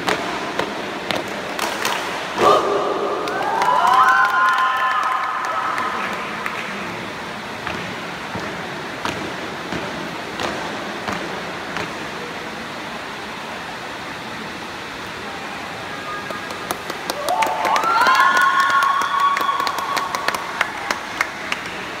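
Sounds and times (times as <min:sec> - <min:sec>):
crowd noise: 0:00.0 - 0:22.0
people shouting: 0:02.4 - 0:05.2.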